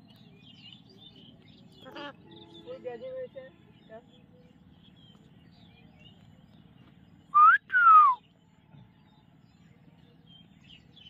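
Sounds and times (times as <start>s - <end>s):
loud two-part whistle: 7.4s - 8.2s.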